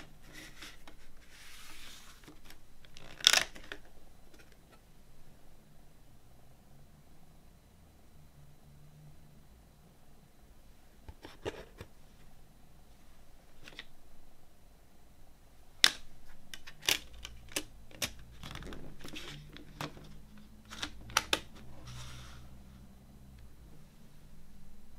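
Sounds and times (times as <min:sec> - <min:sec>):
plastic cd case clicks: 0:20.7 - 0:21.6.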